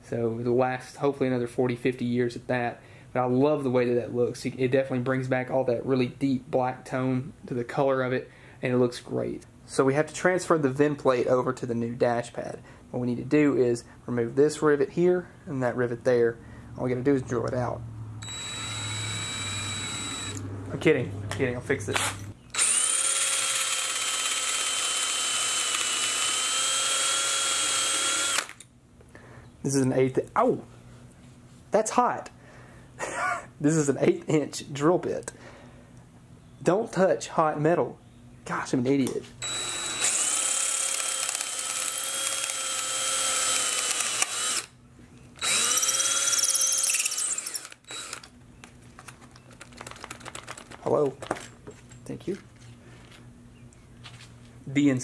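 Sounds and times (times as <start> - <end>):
power drill drilling metal: 18.2 - 20.4, 22.0 - 28.6, 39.4 - 44.7, 45.4 - 48.3.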